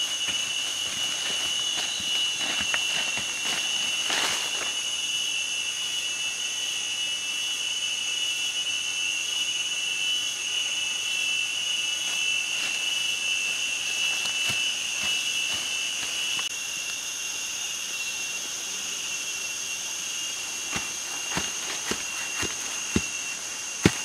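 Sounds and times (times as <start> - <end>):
digging stick scraping soil: 0.0 - 4.8, 12.0 - 16.5, 20.6 - 24.0
insects droning: 0.0 - 24.0.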